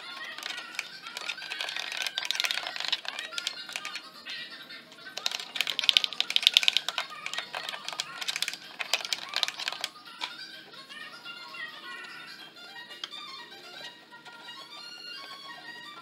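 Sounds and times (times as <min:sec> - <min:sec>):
sharp clicks: 0:04.9 - 0:10.4
background music with strings: 0:05.6 - 0:16.0.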